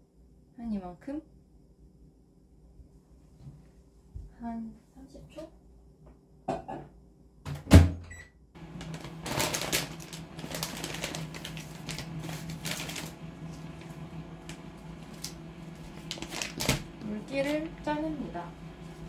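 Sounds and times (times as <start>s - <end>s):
microwave oven humming: 7.4s - 19.0s
plastic wrapping crinkling and tearing: 8.6s - 17.7s.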